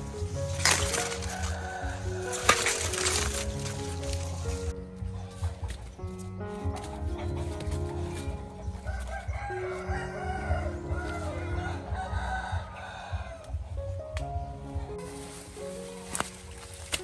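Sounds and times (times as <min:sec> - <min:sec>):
soft background music: 0:00.0 - 0:17.0
rooster crowing: 0:00.8 - 0:03.3, 0:08.8 - 0:13.6.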